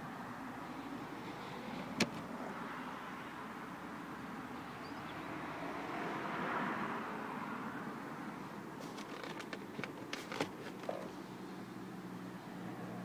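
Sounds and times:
car cabin hum: 1.8s - 2.4s, 8.8s - 11.3s.

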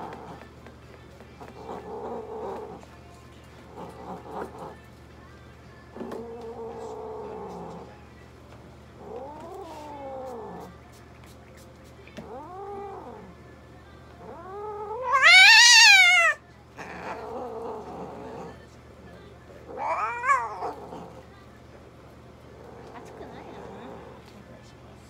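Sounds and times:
cat yowling: 12.2s - 13.3s, 14.2s - 18.5s, 19.7s - 21.2s.

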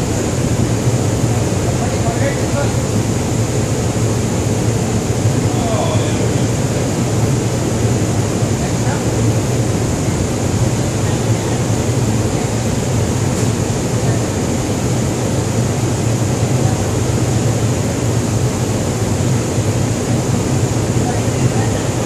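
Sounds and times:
ship machinery drone: 0.0s - 22.0s.

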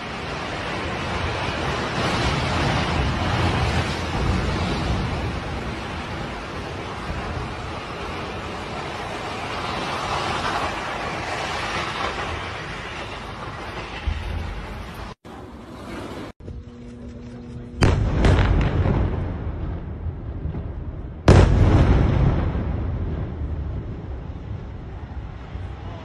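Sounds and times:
steady rushing noise: 0.0s - 26.0s
loud explosion blast: 17.8s - 25.9s.

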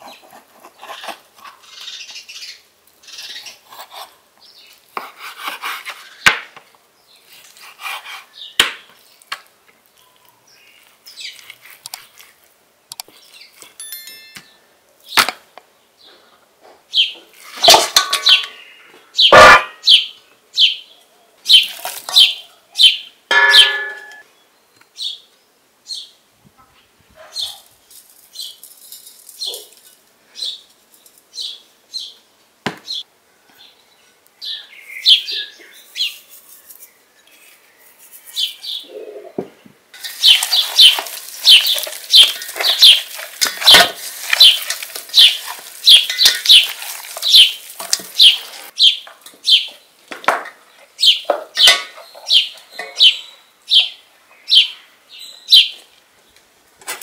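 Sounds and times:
knife cutting meat on a board: 5.0s - 6.0s, 7.6s - 8.3s
small birds chirping: 15.8s - 26.2s, 27.2s - 27.7s, 32.8s - 49.9s, 50.6s - 56.4s
knocks scrapes and rustles: 16.1s - 18.5s
dish clinking: 23.3s - 24.2s.

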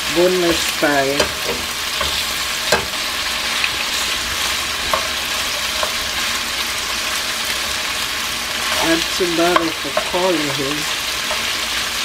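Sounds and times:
chicken sizzling in a frying pan: 0.0s - 12.0s
tongs clicking against pan: 1.1s - 3.0s.

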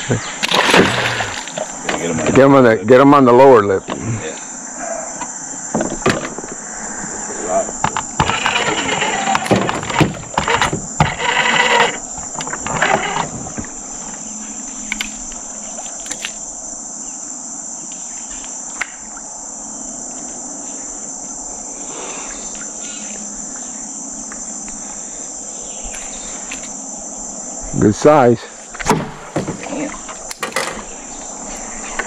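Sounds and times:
high-pitched insect chorus: 0.0s - 32.0s.

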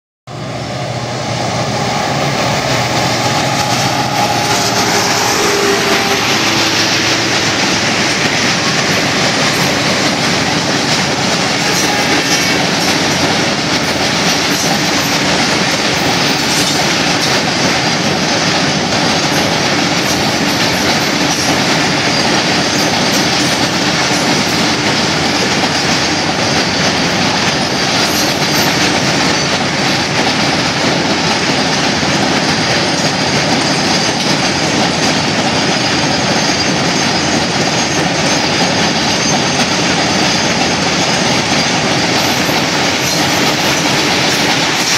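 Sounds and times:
freight train rumbling past: 0.3s - 44.9s.

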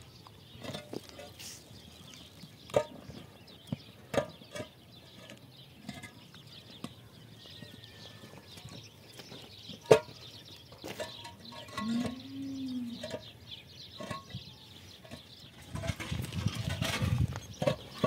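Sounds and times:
concrete blocks knocking together: 15.0s - 18.0s.

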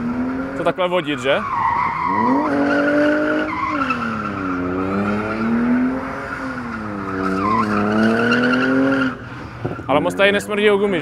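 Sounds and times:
car engine at high revs: 0.0s - 1.0s, 1.8s - 11.0s
tyre squeal: 1.4s - 5.6s, 6.2s - 10.0s.

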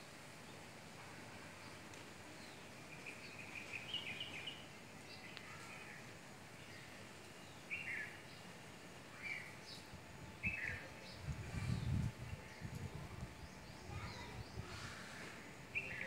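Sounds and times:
faint background hiss: 0.0s - 16.0s.

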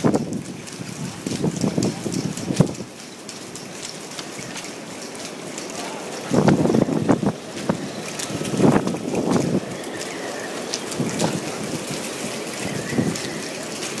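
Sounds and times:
wind buffeting microphone: 0.0s - 4.6s, 5.6s - 14.0s.

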